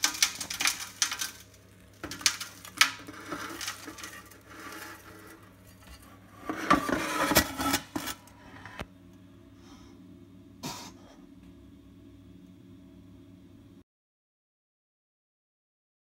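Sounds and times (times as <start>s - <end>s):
steady low hum: 0.0s - 13.8s
scraper scraping ash in metal pan: 2.0s - 8.8s.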